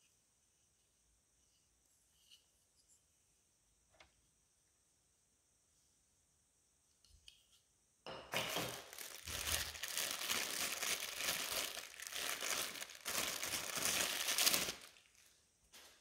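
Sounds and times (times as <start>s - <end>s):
plastic wrapping crinkling: 8.4s - 16.0s.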